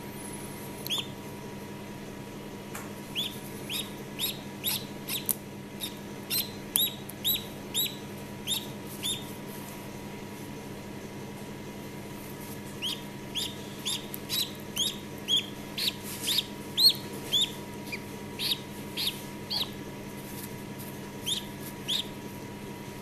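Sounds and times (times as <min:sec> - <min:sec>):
duckling peeping: 0:00.8 - 0:01.2, 0:03.1 - 0:09.4, 0:12.7 - 0:19.8, 0:21.2 - 0:22.2.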